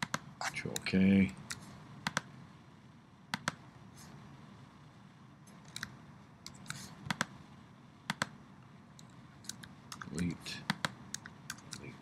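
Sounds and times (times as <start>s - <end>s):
mouse clicks: 3.3s - 3.6s, 5.5s - 7.3s, 8.1s - 8.4s.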